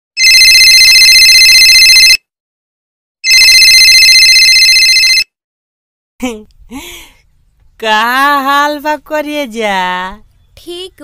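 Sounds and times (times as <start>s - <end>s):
telephone ringing: 0.2s - 2.2s, 3.2s - 5.3s.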